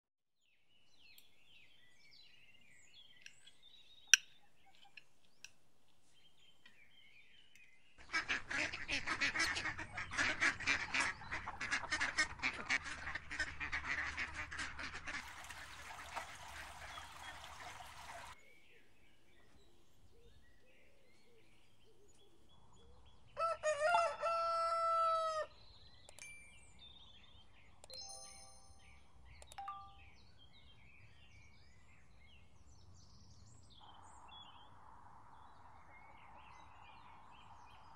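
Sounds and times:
faint birdsong: 0.4s - 37.9s
ducks quacking: 8.0s - 18.4s
rooster crowing: 23.4s - 25.5s.

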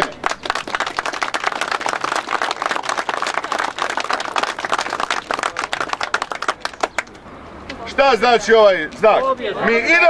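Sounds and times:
crowd applauding: 0.0s - 7.2s.

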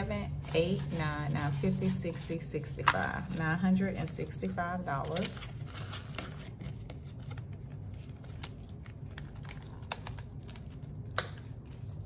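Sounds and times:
paper rustling: 4.8s - 10.8s.

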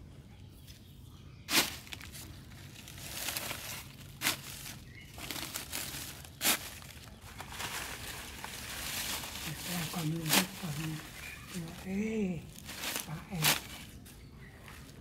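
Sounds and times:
dry leaves crackling and rustling: 1.5s - 15.0s
stick worked into soil: 12.8s - 13.9s.

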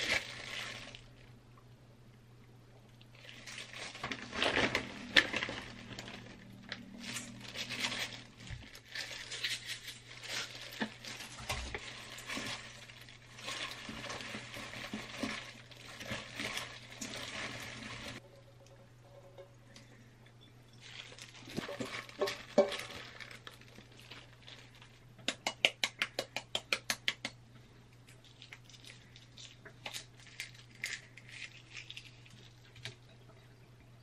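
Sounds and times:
food rustling in metal bowl: 0.0s - 1.3s, 3.1s - 19.5s, 20.7s - 25.1s
plastic gloves crinkling: 0.0s - 1.6s, 2.8s - 18.4s, 20.7s - 26.9s, 27.6s - 33.8s.

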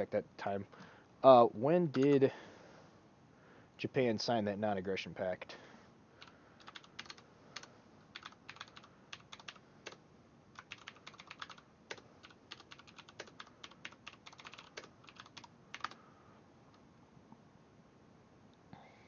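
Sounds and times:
typing on a keyboard: 6.2s - 10.0s, 10.6s - 16.0s.

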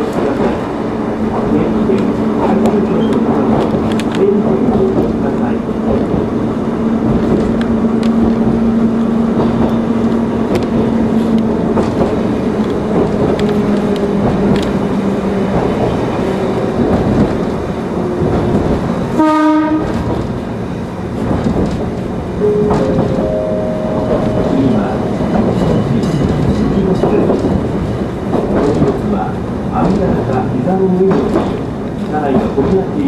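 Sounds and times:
train motor hum: 0.0s - 29.4s
train rail and wheel noise: 0.0s - 33.0s
train horn blast: 19.2s - 20.0s.

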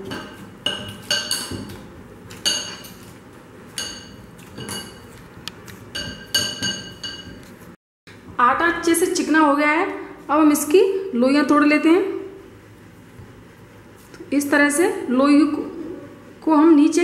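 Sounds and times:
glass bowl clinking: 0.0s - 1.7s, 2.3s - 3.1s, 3.7s - 5.1s, 5.9s - 7.4s.

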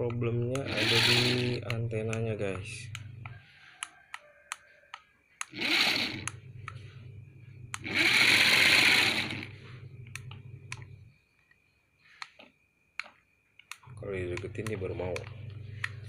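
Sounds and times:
motor whirring through plastic gears: 0.5s - 2.9s, 5.4s - 6.8s, 7.8s - 10.9s
small electric motors humming: 0.5s - 3.3s, 5.4s - 11.1s.

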